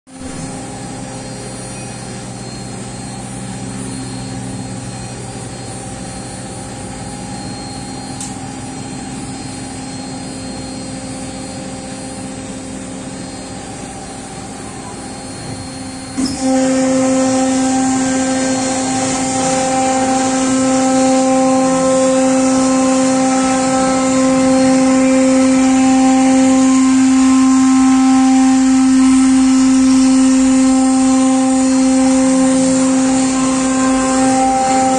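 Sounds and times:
router spindle cutting panel: 16.2s - 34.9s.

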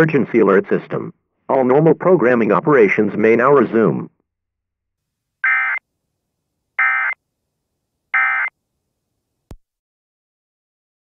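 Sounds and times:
digital data tone bursts: 5.4s - 5.8s, 6.8s - 7.2s, 8.2s - 8.5s.

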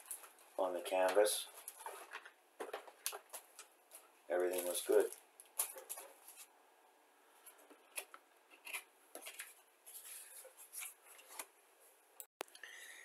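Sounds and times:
plastic packaging rustling: 0.0s - 6.5s.

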